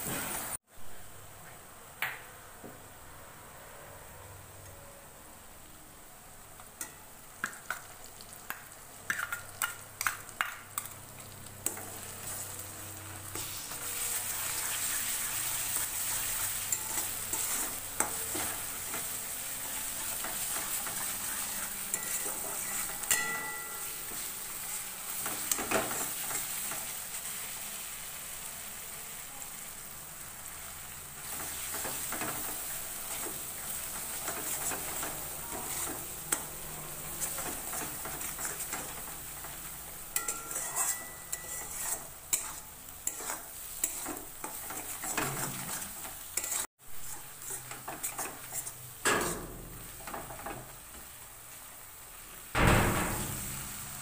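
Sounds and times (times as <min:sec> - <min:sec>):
onions sizzling in oil: 0:00.0 - 0:01.1, 0:05.4 - 0:54.0
spatula scraping pan: 0:11.6 - 0:27.2, 0:31.2 - 0:51.1
steel bowl tapping: 0:22.0 - 0:24.1, 0:40.2 - 0:41.7.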